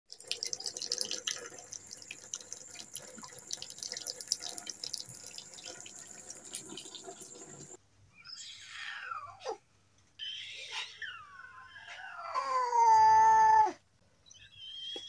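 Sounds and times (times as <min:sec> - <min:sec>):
tap water trickling and splashing: 0:00.1 - 0:07.8.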